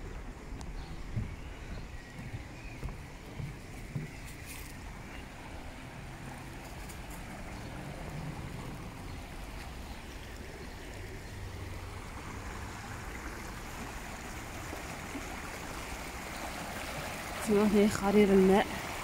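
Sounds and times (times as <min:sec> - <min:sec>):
river water rushing over stones: 0:04.5 - 0:19.0.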